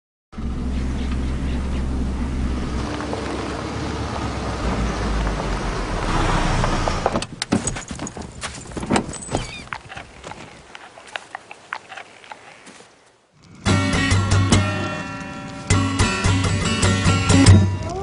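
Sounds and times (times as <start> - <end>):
car engine and tyre noise: 0.3 - 17.8
sharp knocks and thumps: 6.7 - 10.4.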